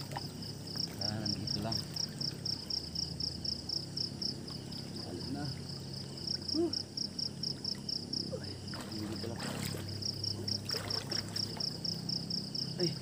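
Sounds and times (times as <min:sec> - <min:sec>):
water sloshing and splashing: 0:00.0 - 0:02.9, 0:08.5 - 0:12.1
insects chirping: 0:00.0 - 0:13.0.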